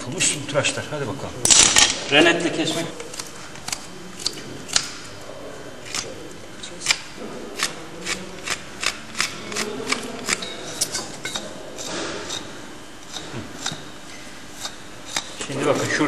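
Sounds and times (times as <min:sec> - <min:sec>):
knife cutting hoof horn: 0:03.0 - 0:05.0, 0:05.8 - 0:07.0, 0:07.6 - 0:13.9, 0:14.5 - 0:16.0.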